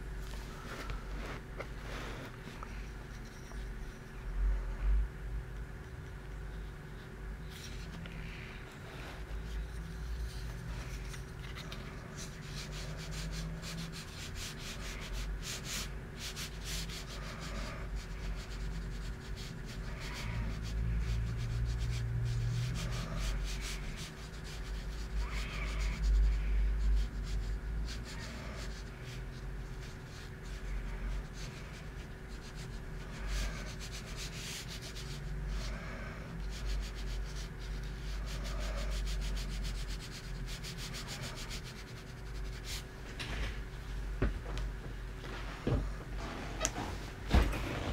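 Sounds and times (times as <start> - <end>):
pencil shading on paper: 12.1 - 35.8, 36.4 - 42.8.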